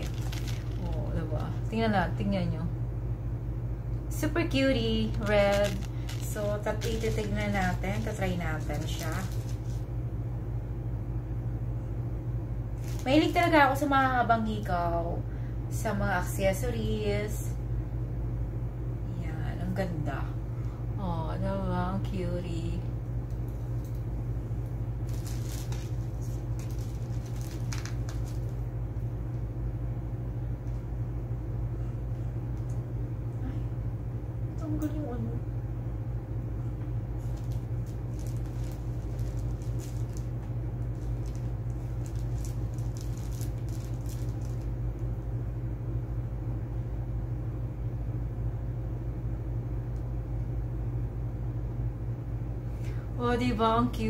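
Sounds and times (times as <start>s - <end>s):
rustles and clicks of handling jewelry: 0.0s - 1.6s, 5.2s - 9.9s, 12.8s - 13.6s, 25.0s - 28.6s, 37.2s - 44.7s
room hum: 0.0s - 54.0s.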